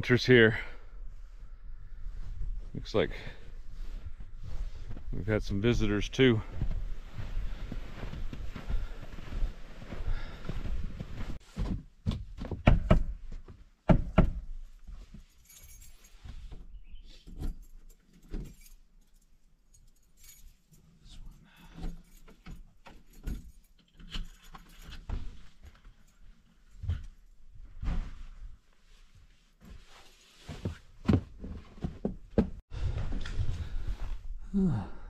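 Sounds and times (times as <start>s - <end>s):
heavy footsteps: 1.1s - 13.6s
keys jangling in a door lock: 15.2s - 16.3s, 17.1s - 27.1s.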